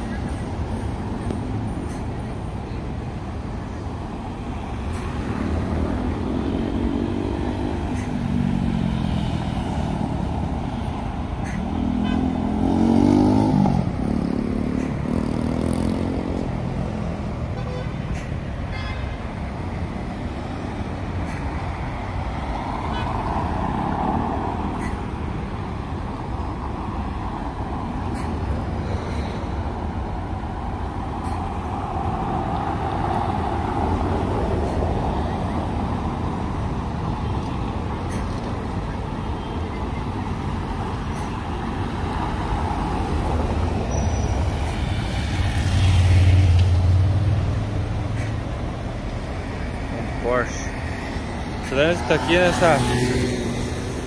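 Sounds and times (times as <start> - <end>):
cars passing: 0.0 - 54.0
engines accelerating by: 4.9 - 17.5, 26.3 - 54.0.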